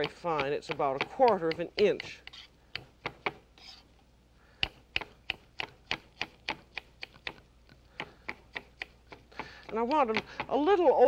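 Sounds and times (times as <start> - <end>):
knife tapping cutting board: 0.0 - 2.2.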